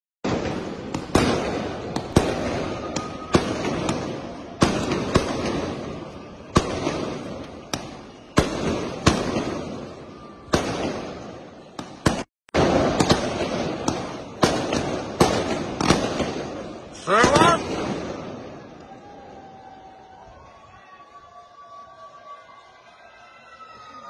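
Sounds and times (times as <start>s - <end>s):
fireworks bursting: 0.2s - 19.1s.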